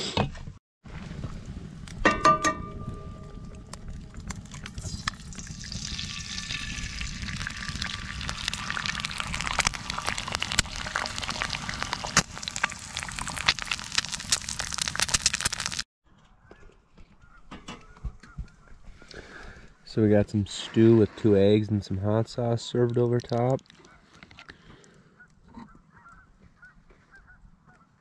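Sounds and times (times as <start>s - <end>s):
ringing metal clank: 2.0s - 3.8s
egg sizzling in oil: 3.9s - 15.9s.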